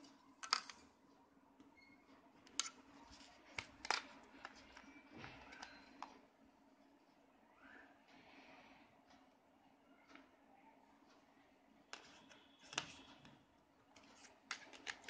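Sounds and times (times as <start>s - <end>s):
faint low hum: 0.0s - 15.0s
plastic clicks and taps: 2.5s - 6.2s, 14.0s - 15.0s.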